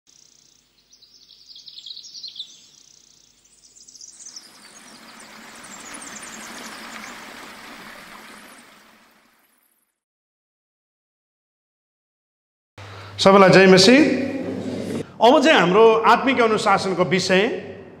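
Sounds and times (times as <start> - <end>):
glittering chirp-like sparkles: 0.1 - 10.0.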